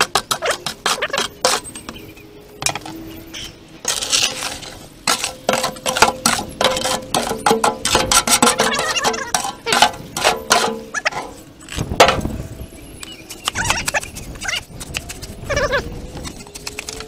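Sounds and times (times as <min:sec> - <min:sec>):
gritty scrapes and clinks: 0:03.8 - 0:12.3.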